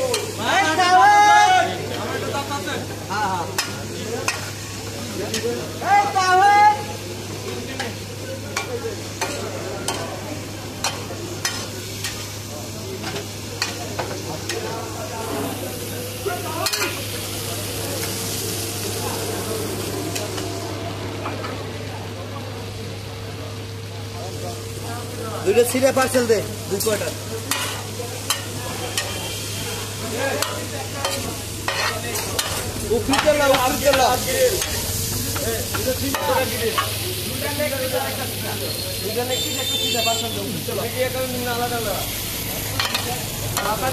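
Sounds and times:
sizzling: 0.0 - 43.9
metal spatula scraping griddle: 30.4 - 33.7.

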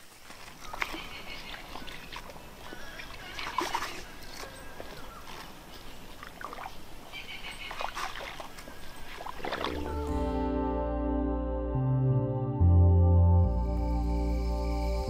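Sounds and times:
feet sloshing through mud and water: 0.0 - 10.2.

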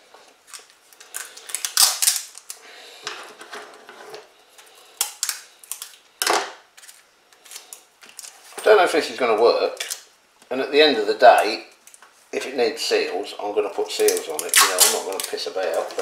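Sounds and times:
sticky tape pulled and torn: 0.5 - 2.6, 14.0 - 15.8.

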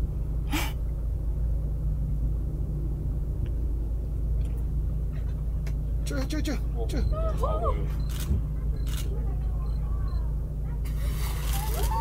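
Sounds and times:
boat engine rumble: 0.0 - 12.0.

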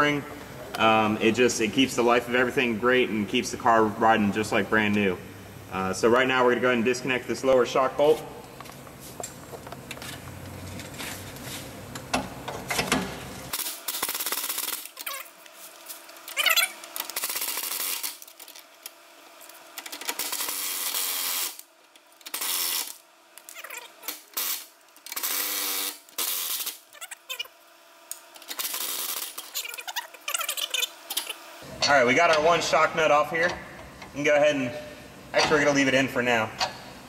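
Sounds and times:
power wrench whirring: 13.5 - 15.4, 16.2 - 18.5, 19.8 - 27.4, 28.4 - 31.4.

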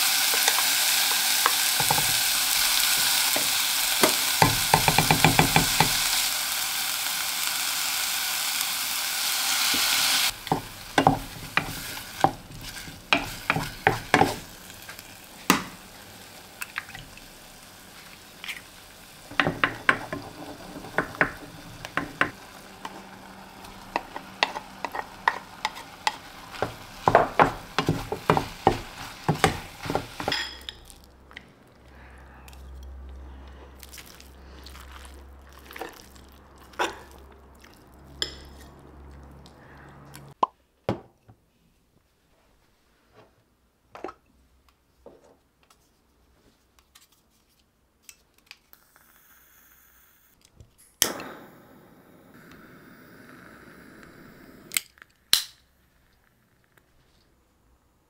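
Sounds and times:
food frying sizzle: 0.0 - 31.2, 33.8 - 40.4
spatula knocking in pan: 4.0 - 6.0, 10.5 - 12.4, 13.1 - 14.4, 19.3 - 22.4, 23.9 - 30.5.

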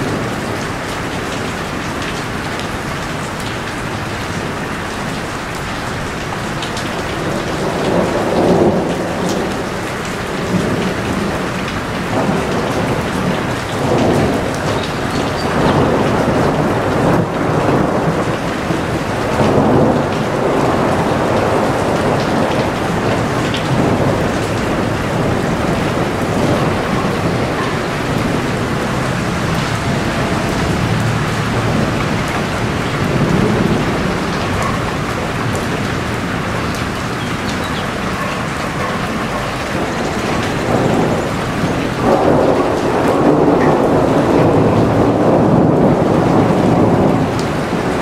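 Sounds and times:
heavy rain falling: 0.0 - 48.0
low rumbling: 25.1 - 37.4.

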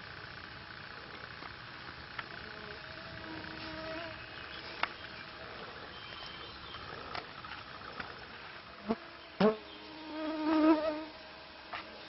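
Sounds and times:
flying insect buzzing: 2.3 - 11.3.

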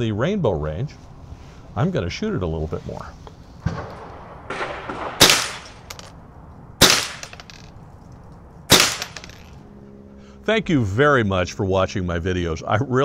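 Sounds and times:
rifle shots: 3.6 - 6.1, 6.8 - 7.7, 8.7 - 9.5.

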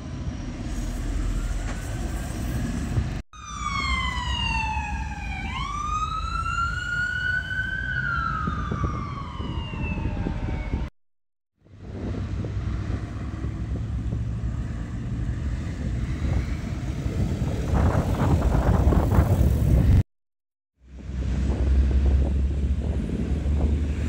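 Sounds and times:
road traffic rumble: 0.0 - 10.9, 11.6 - 20.0, 20.8 - 24.0
emergency vehicle siren wailing: 3.4 - 10.9
wind noise on microphone: 7.6 - 10.9, 11.6 - 20.0, 20.9 - 24.0.

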